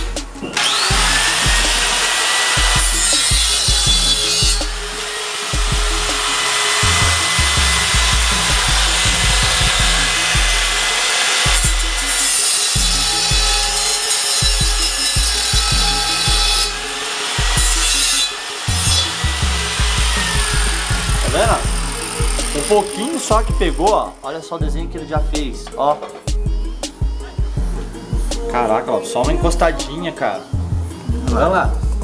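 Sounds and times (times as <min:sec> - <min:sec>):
angle grinder sanding metal: 0:00.0 - 0:24.3.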